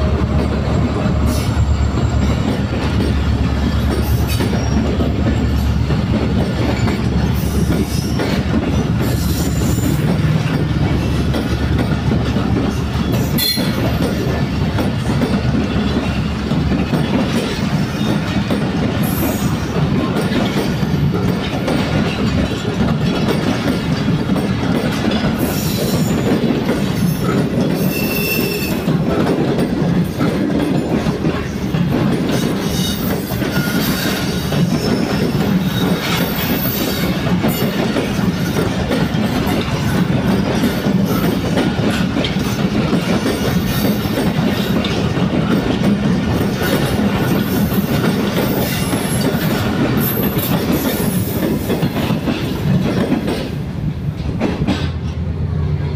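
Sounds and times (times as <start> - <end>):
clickety-clack over rail joints: 0.0 - 55.9
train wheels rumbling on rail: 0.0 - 55.9
high wheel squeals: 27.8 - 28.8.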